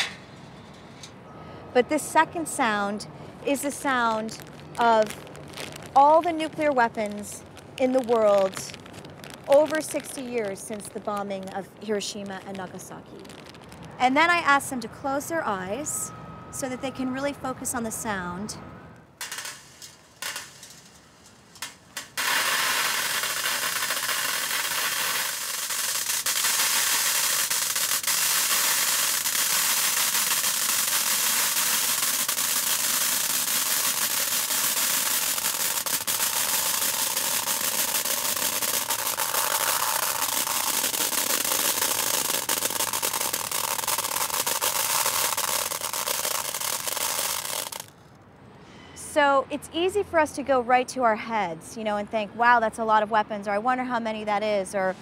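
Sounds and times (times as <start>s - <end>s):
pellets pouring into metal tin: 22.2s - 47.9s.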